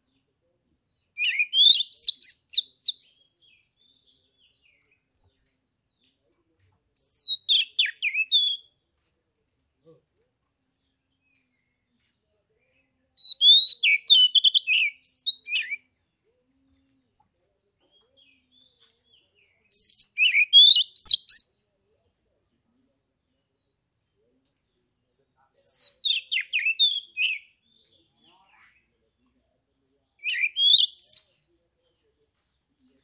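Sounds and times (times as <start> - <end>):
magpie-robin singing: 1.2 - 5.0, 7.0 - 8.7, 13.2 - 15.8, 17.9 - 21.6, 25.6 - 27.9, 30.2 - 31.4.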